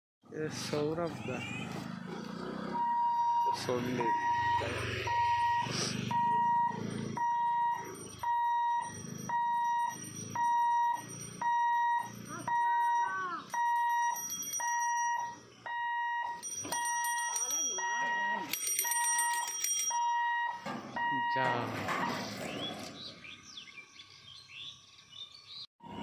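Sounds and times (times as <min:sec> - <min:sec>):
level crossing warning beeps: 0:02.8 - 0:19.1, 0:19.9 - 0:21.7.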